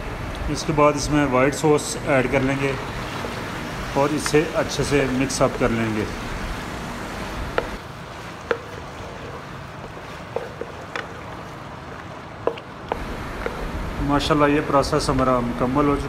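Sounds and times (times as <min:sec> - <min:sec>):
steady hiss: 0:00.0 - 0:07.9, 0:12.9 - 0:16.0
wet squishing of stirred pasta: 0:02.3 - 0:13.8.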